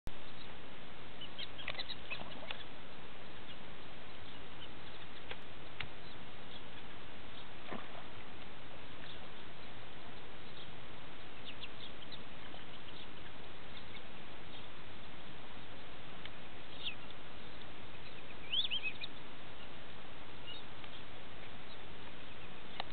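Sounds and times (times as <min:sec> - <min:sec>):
ducks peeping and squeaking: 0:01.2 - 0:22.9.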